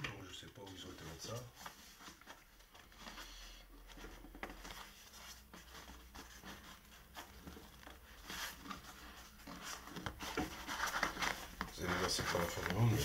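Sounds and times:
hands scraping cardboard box: 2.9 - 13.0.

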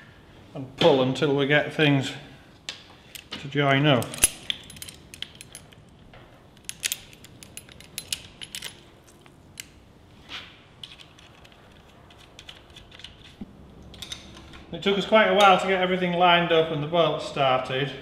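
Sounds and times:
metallic clicks of pliers and bolts: 4.0 - 5.8, 6.6 - 8.8.

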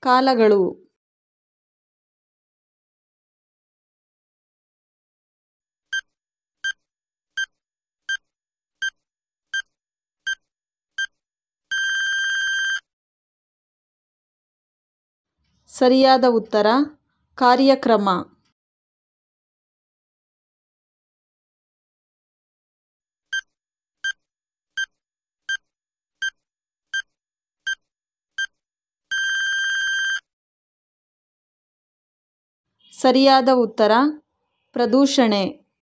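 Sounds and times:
long electronic beep: 11.7 - 12.8, 29.1 - 30.2
short electronic timer beeps: 11.7 - 12.8, 29.1 - 30.2.

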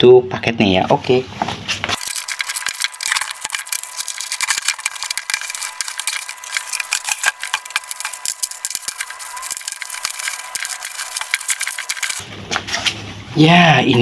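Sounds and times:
packaging crinkling and crackling: 1.9 - 12.2.

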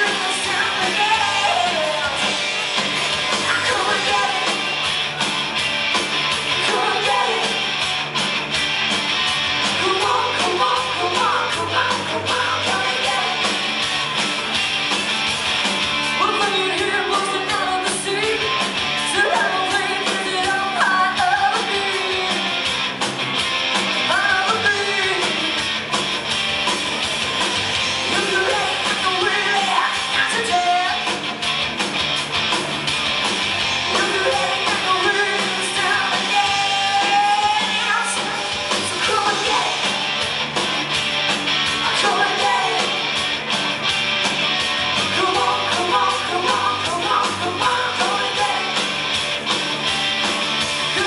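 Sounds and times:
woman singing: 0.0 - 2.3, 3.4 - 4.6, 6.6 - 7.6, 9.8 - 13.4, 16.2 - 18.5, 19.1 - 22.5, 24.1 - 25.6, 28.2 - 31.0, 33.9 - 39.8, 41.8 - 42.9, 45.1 - 48.8
bass guitar: 0.0 - 51.0
drums: 0.0 - 51.0
electric guitars: 0.0 - 51.0.

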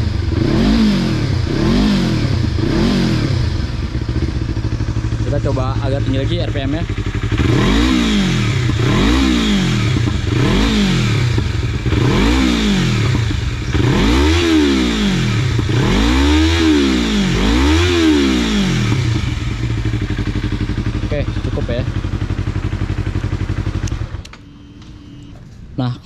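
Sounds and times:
motorcycle engine revving: 0.0 - 25.3.

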